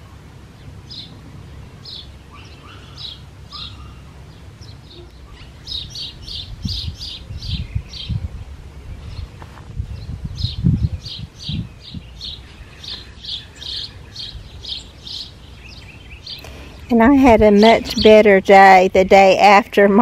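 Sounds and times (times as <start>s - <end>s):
songbirds chirping: 0.0s - 20.0s.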